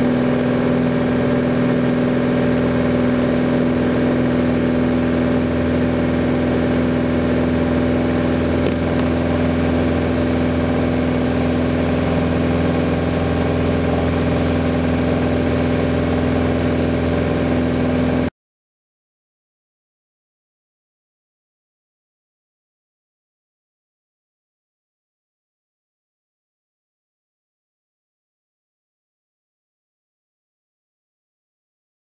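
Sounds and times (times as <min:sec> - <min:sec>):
aircraft propeller engine droning: 0:00.0 - 0:18.3.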